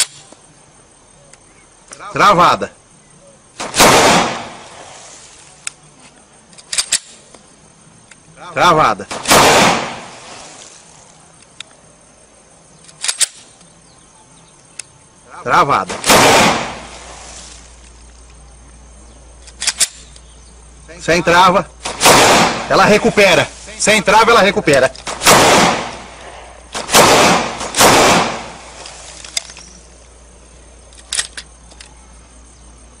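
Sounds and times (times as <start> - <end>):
pistol gunshot echoing: 3.6 - 4.7, 9.1 - 10.1, 15.9 - 16.9, 21.8 - 23.0, 25.1 - 26.1, 26.7 - 28.6
sharp clicks: 5.5 - 5.8, 6.5 - 8.3, 12.8 - 13.8, 15.8 - 16.8, 19.4 - 20.4, 21.7 - 29.9, 30.9 - 32.0
faint clicks: 10.6 - 11.8, 14.6 - 15.0, 30.9 - 32.0.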